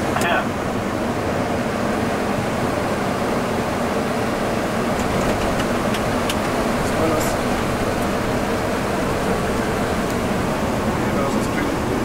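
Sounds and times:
air conditioning: 0:00.0 - 0:12.0
jet engines: 0:00.0 - 0:12.0
airflow rushing: 0:04.8 - 0:12.0.

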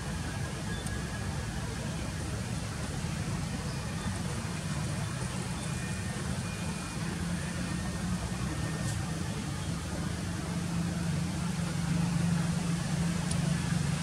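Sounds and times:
engine rumbling: 0:01.6 - 0:14.0
faint click: 0:13.2 - 0:13.5.

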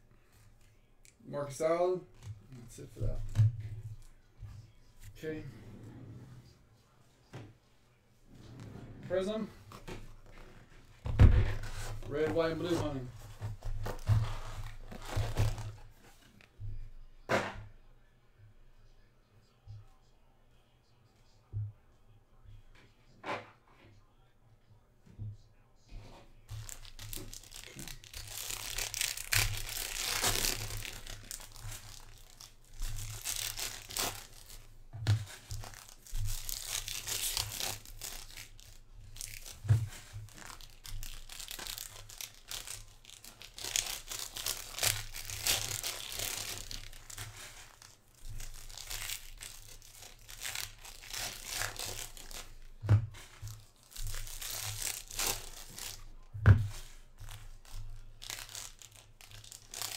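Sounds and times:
foil wrappers crinkling and tearing: 0:11.6 - 0:15.8, 0:26.5 - 0:59.9.

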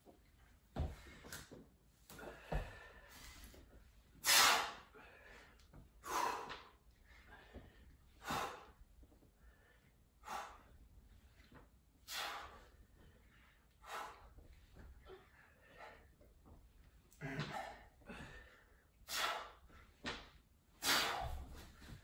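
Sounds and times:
sharp forceful breaths: 0:04.2 - 0:07.6, 0:12.1 - 0:14.4, 0:17.4 - 0:19.7, 0:20.8 - 0:21.6.

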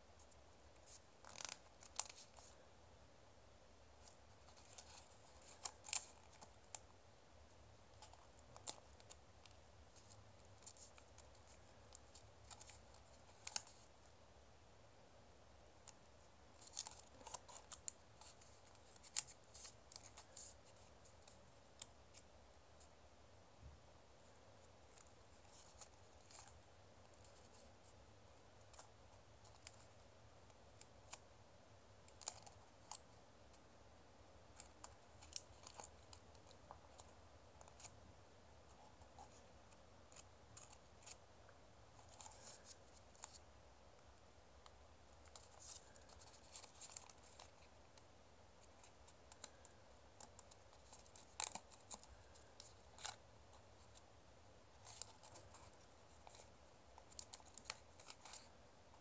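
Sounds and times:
low room hiss: 0:00.0 - 0:59.0
paper being folded: 0:00.8 - 0:02.6, 0:48.6 - 0:54.0.

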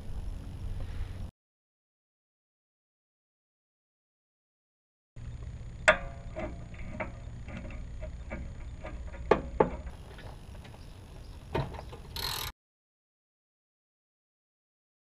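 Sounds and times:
ratchet clicks: 0:11.5 - 0:12.5.

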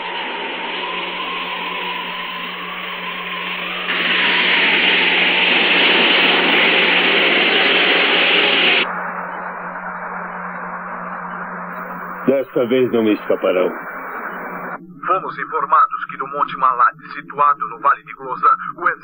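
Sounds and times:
low hum: 0:08.8 - 0:15.0
hovercraft engine rushing: 0:11.8 - 0:14.8.

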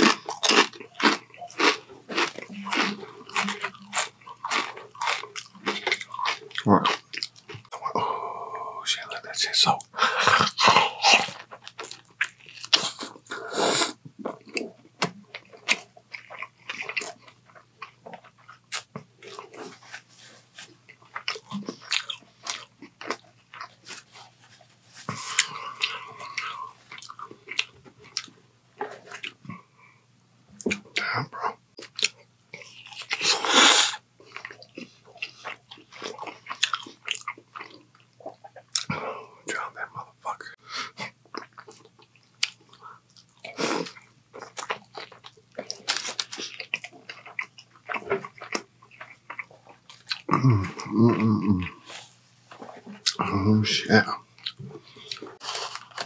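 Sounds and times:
biting and chewing: 0:00.0 - 0:07.8, 0:40.9 - 0:50.9.

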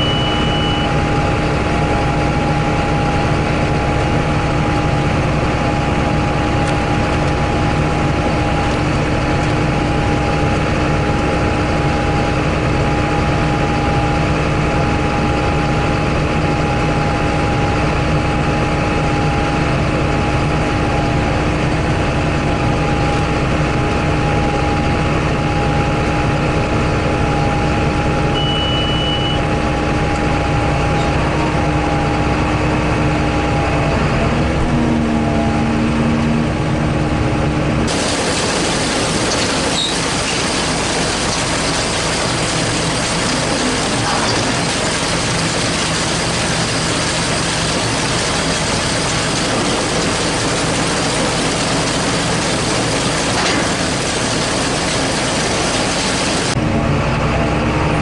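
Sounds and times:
short high beep: 0:00.0 - 0:01.0, 0:28.4 - 0:29.5
steady whine: 0:00.0 - 0:58.0
tractor diesel engine running: 0:00.0 - 0:58.0.

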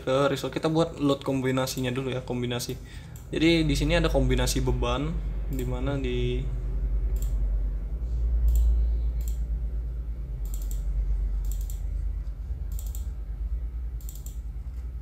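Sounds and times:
steady low hum: 0:00.0 - 0:15.0
computer mouse clicking: 0:07.1 - 0:07.4, 0:08.4 - 0:09.5, 0:10.4 - 0:12.0, 0:12.7 - 0:13.2, 0:14.0 - 0:14.5.

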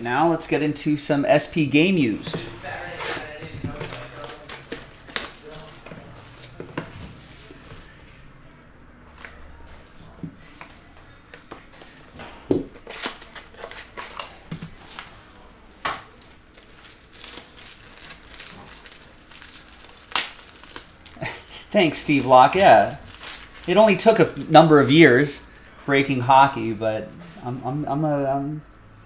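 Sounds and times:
plastic wrap crinkling: 0:02.4 - 0:08.0, 0:12.7 - 0:25.7.

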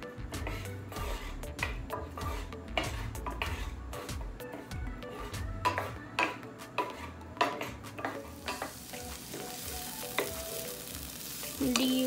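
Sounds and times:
onions sizzling in oil: 0:00.0 - 0:12.0
wooden spoon scraping a pan: 0:00.3 - 0:09.6.

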